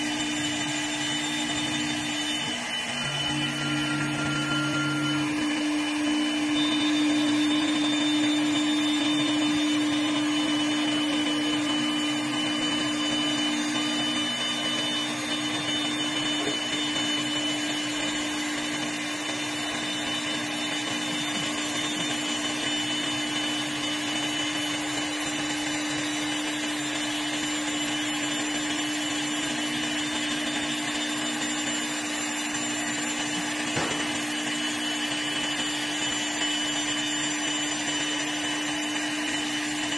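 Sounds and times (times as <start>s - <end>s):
lathe motor hum with whine: 0.0s - 39.9s.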